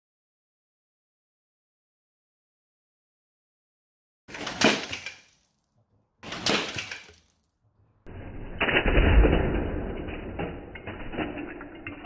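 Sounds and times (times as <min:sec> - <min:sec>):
plastic parts clattering: 0:04.3 - 0:12.0.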